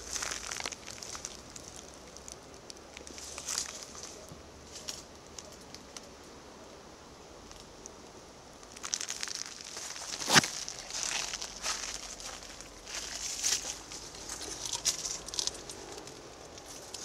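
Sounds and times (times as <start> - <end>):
footsteps in dry leaves: 0.0 - 2.4, 3.0 - 5.1, 8.7 - 17.0
sharp crack: 8.6 - 11.8.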